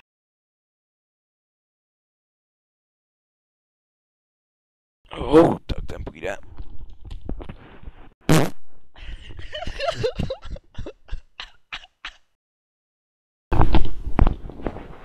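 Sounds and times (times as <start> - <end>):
person farting: 8.3 - 8.6.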